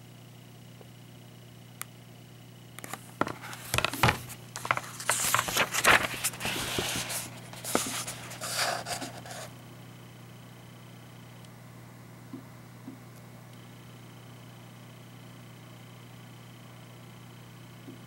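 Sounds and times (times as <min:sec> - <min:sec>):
book page turning: 0:02.8 - 0:09.5.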